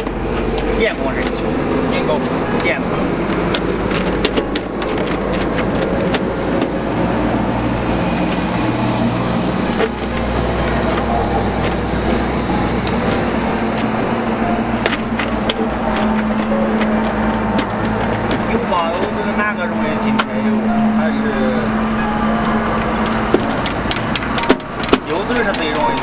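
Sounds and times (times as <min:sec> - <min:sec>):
vehicle engine rumbling: 0:00.0 - 0:26.0.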